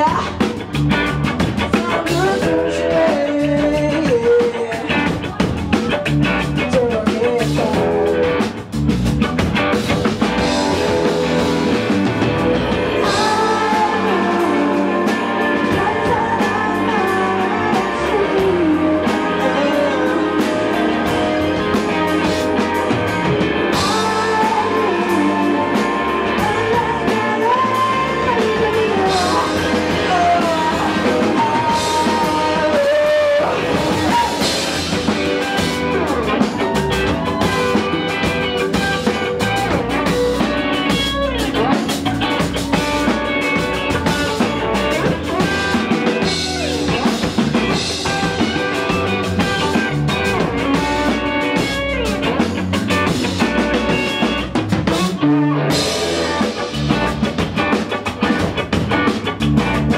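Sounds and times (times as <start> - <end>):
bass guitar: 0.0 - 59.9
drum kit: 0.0 - 59.9
electric guitar: 0.0 - 59.9
live indie rock band: 0.0 - 59.9
gliding lead melody: 9.8 - 54.5.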